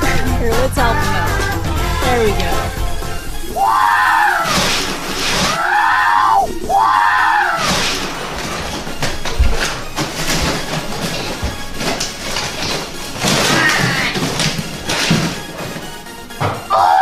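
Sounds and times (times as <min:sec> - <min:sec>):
paper crackling and rustling: 0:04.4 - 0:05.6, 0:07.4 - 0:16.0.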